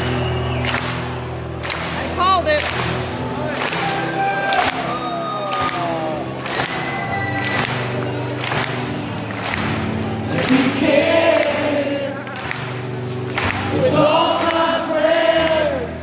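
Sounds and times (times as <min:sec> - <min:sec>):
live rock band playing: 0:00.0 - 0:13.8
man singing lead vocal: 0:10.2 - 0:12.4, 0:13.7 - 0:16.0.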